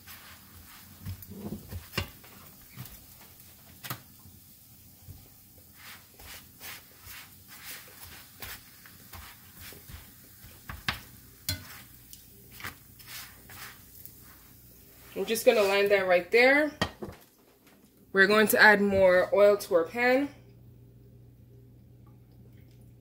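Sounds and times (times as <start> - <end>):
flatbread sizzling in oil: 0.0 - 16.1.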